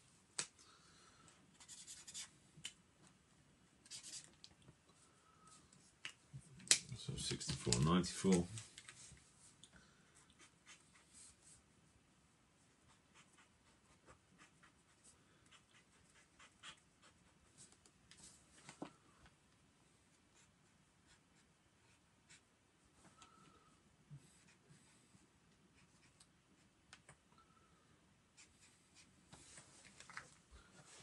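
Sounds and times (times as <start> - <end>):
marker pen scratching on paper: 1.5 - 2.3, 3.8 - 4.4, 10.4 - 11.5.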